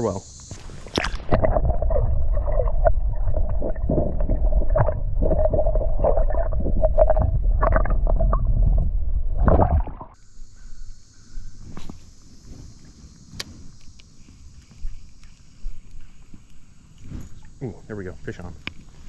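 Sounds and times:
underwater creek rumble and gurgling: 0.6 - 10.2.

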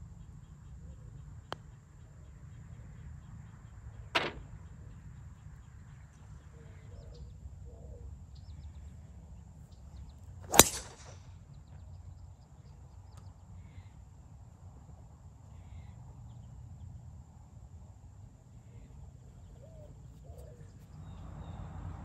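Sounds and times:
golf driver striking ball: 10.5 - 11.2.

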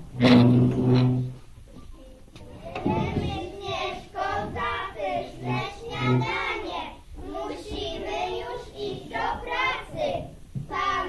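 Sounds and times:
children singing: 2.4 - 11.0.

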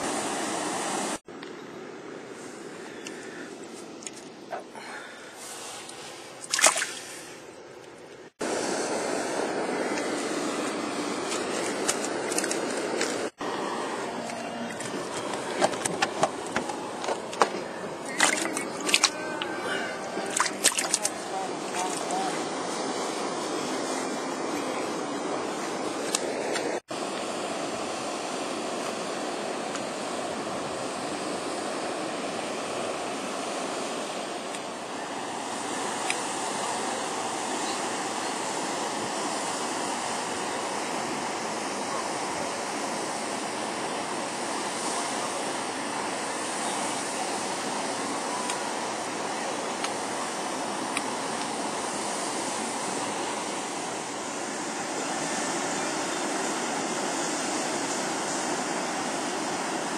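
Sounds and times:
steady rushing noise: 8.4 - 47.4.

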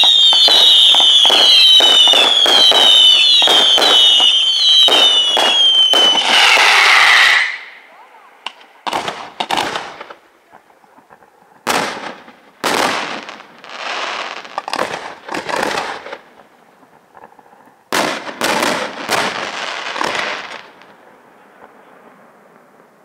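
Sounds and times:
firework shells bursting: 0.0 - 7.8
firework crackling: 0.0 - 22.1.

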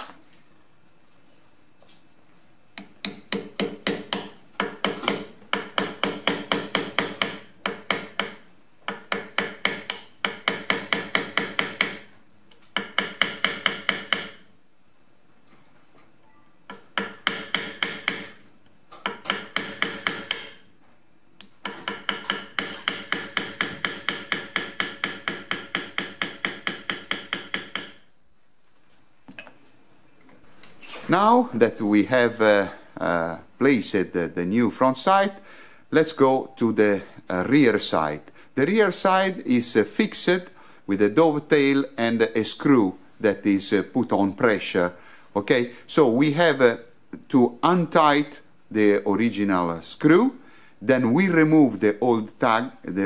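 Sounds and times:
hammer tapping metal punch: 2.8 - 12.1, 12.8 - 14.4, 16.7 - 18.4, 19.0 - 20.6, 21.4 - 28.0.

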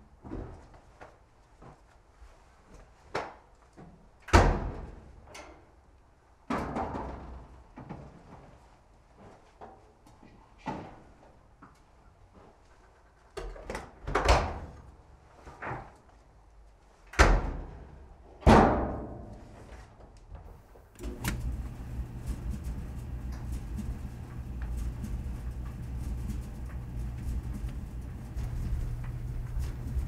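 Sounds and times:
clothes dryer humming: 20.5 - 30.0
washer lid and dryer door shutting: 21.0 - 24.8.

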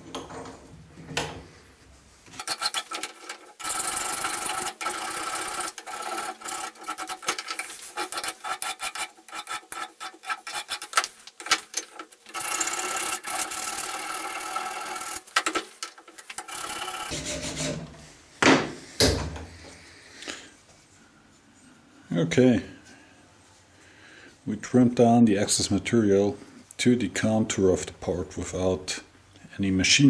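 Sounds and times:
hand file rasping on metal: 4.0 - 11.0, 17.1 - 17.9.

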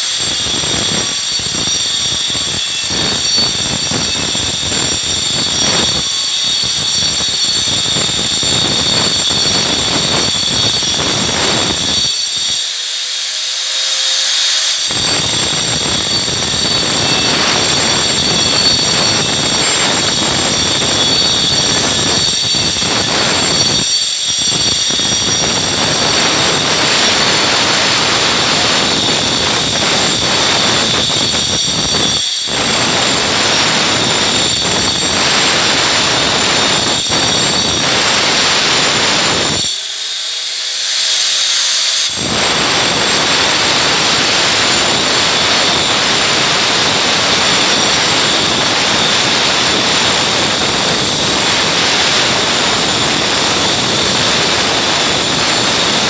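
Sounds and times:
angle grinder cutting masonry: 0.0 - 56.0.

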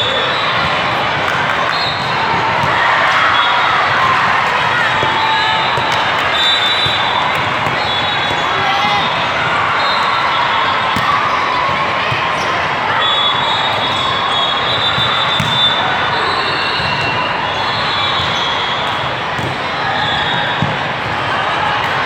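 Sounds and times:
crowd chatter in a large hall: 0.0 - 22.0
volleyballs thudding: 15.0 - 15.8, 19.3 - 22.0.

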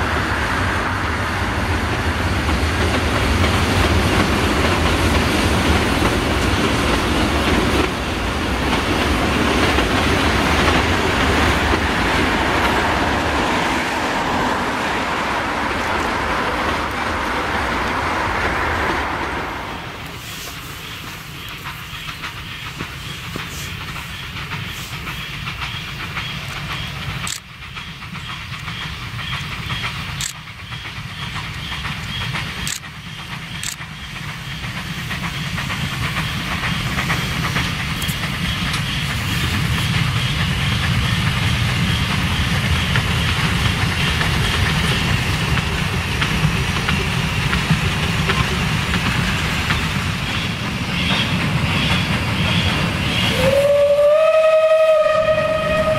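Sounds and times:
steam locomotive chuffing and hissing: 0.0 - 55.9
train rumbling on rails: 0.0 - 55.9
sharp clicks: 31.4 - 33.9.

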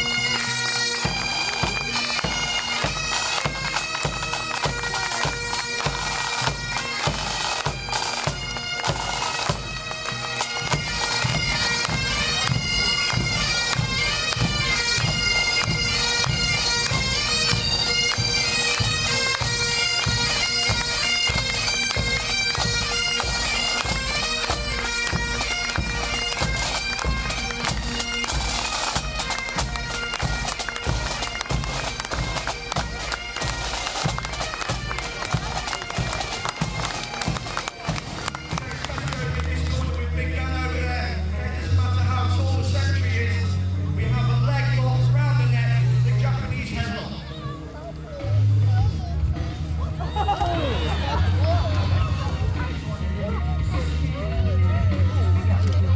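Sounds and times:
drums beating time: 0.0 - 40.6
bagpipes with drone: 0.0 - 55.9.

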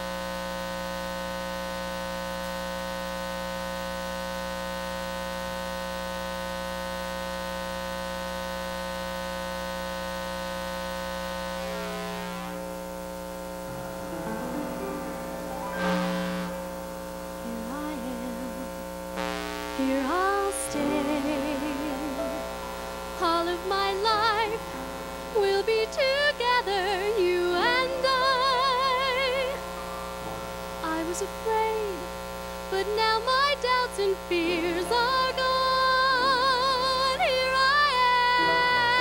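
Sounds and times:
electrical mains hum: 0.0 - 39.0
sustained accompaniment chords: 13.4 - 17.7, 20.7 - 31.1, 38.3 - 39.0
woman singing into microphone: 17.4 - 18.8, 19.8 - 22.6, 23.2 - 29.8, 30.8 - 32.1, 32.7 - 39.0.

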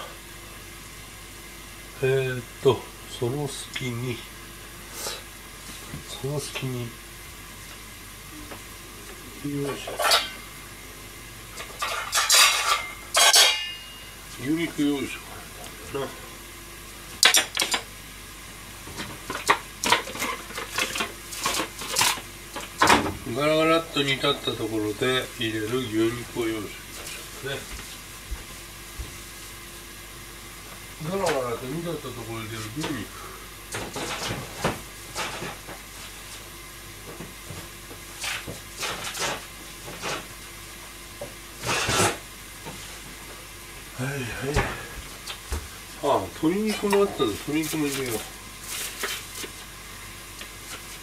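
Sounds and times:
metal dish clattering: 11.8 - 13.9.

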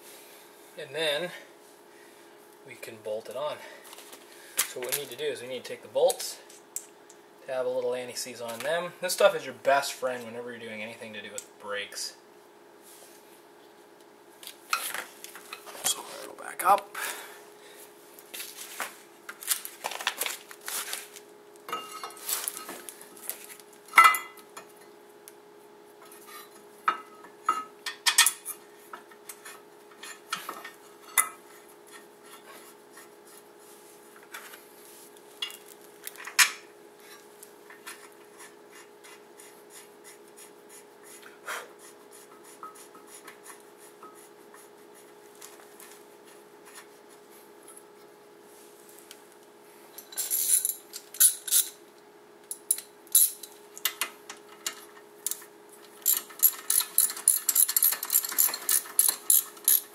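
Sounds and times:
faint steady hum: 0.0 - 59.9
metal clinks and scrapes: 50.0 - 51.8, 56.0 - 59.9.

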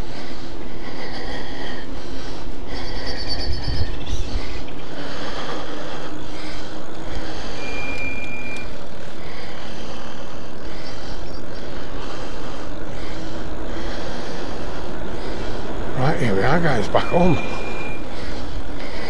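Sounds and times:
wind noise on microphone: 3.2 - 4.7
short high steady tone: 16.9 - 18.1.

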